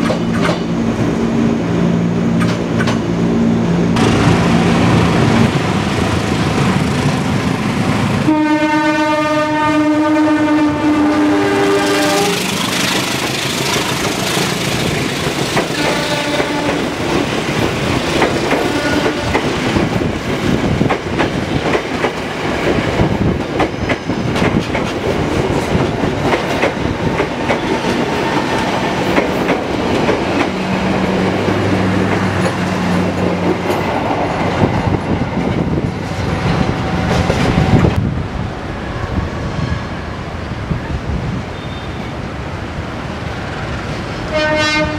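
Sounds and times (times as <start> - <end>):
train rumbling past: 0.0 - 44.9
train horn blast: 8.2 - 12.6, 15.7 - 17.0, 18.6 - 19.4, 44.3 - 44.9
wheels clacking over rail joints: 11.8 - 34.5.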